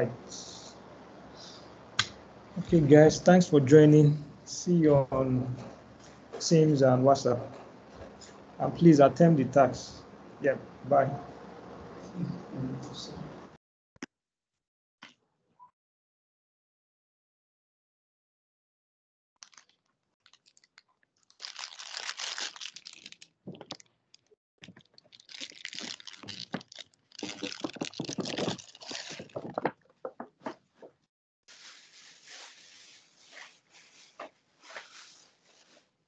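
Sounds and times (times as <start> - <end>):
crackling crunching noise: 19.4 - 30.6.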